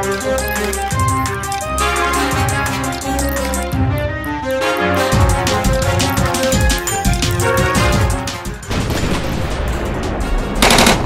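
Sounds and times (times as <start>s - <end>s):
background music with beat: 0.0s - 8.7s.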